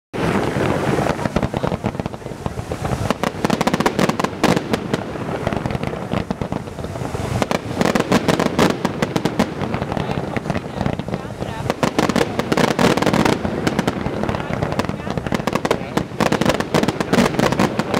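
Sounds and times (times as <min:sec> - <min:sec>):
fireworks bangs: 0:00.2 - 0:17.9
fireworks crackling: 0:00.2 - 0:17.9.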